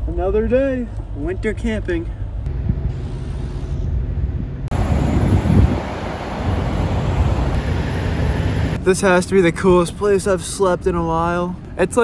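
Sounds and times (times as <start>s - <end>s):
wind buffeting microphone: 2.4s - 7.7s.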